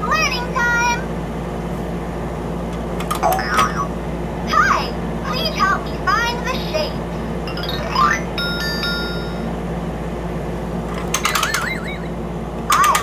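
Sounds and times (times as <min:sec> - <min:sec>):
toy warbling tones: 0:07.5 - 0:09.4, 0:11.2 - 0:13.0
toy bright ringing tones: 0:07.5 - 0:09.5, 0:11.3 - 0:12.1.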